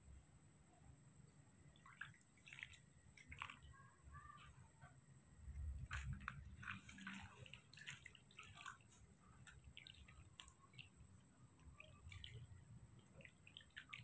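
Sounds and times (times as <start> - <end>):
water splashing and dripping: 1.7 - 3.8, 5.7 - 14.0.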